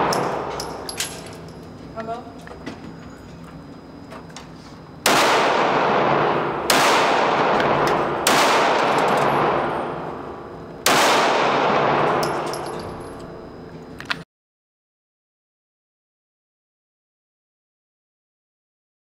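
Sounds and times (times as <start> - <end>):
gunshots with echoing decay: 0.0 - 1.0, 5.0 - 12.8.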